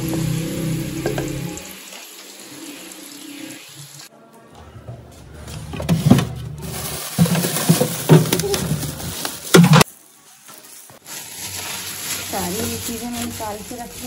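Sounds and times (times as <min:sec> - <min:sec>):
plastic bags rustling: 0:05.5 - 0:14.0.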